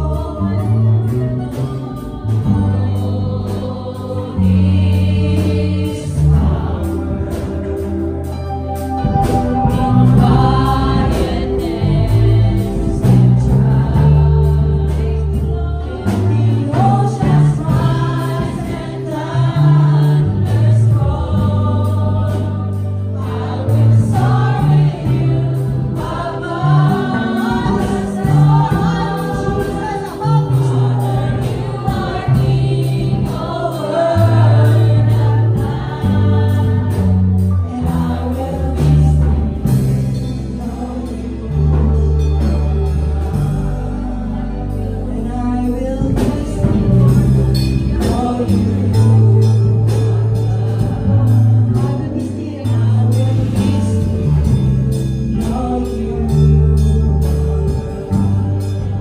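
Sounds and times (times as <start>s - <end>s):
bass line: 0.0s - 59.0s
group singing: 0.0s - 59.0s
steady beat: 6.0s - 44.8s.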